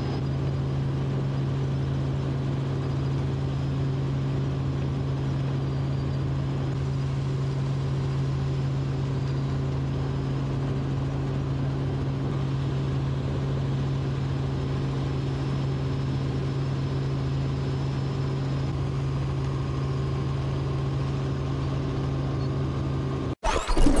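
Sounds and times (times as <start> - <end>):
aircraft engine drone in cabin: 0.0 - 24.0
loud burst of noise: 23.4 - 24.0.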